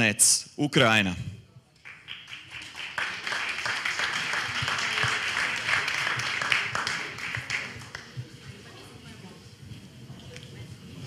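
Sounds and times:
audience applauding: 1.8s - 8.2s.

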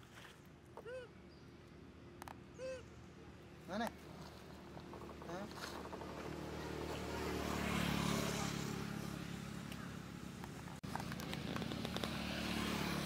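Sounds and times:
vehicle engine humming: 3.3s - 13.0s.

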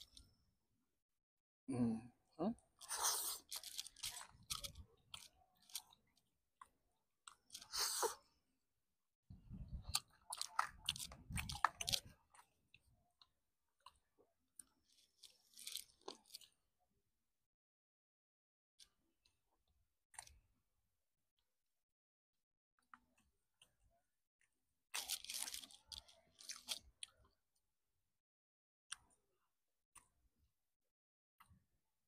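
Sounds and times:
person chewing crispy food: 2.8s - 8.3s, 9.7s - 16.7s, 24.4s - 27.6s.

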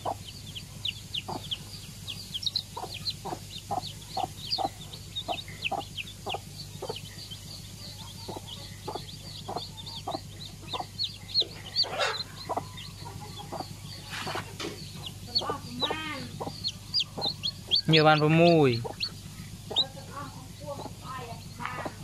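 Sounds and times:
chicks peeping: 0.0s - 22.0s
hen clucking: 0.0s - 22.0s.

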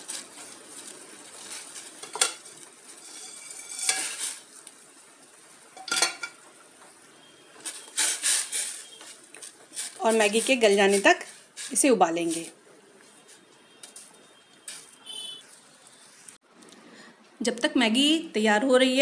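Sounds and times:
water boiling in a pot: 0.0s - 12.9s
metal ladle scraping pot: 0.1s - 4.6s, 7.6s - 12.5s
clinks and knocks against pot: 5.8s - 6.4s.

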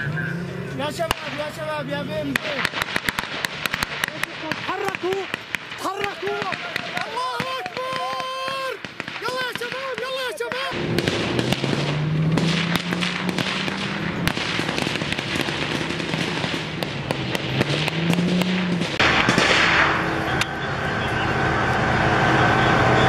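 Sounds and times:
rifle shots: 2.3s - 20.7s
loud rushing noise: 10.7s - 23.0s
vehicle engine running: 10.7s - 23.0s.

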